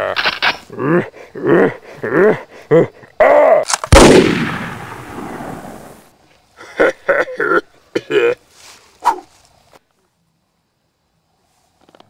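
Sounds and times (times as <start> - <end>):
gunshot ringing: 3.9 - 5.9
vocal calls: 9.0 - 9.3.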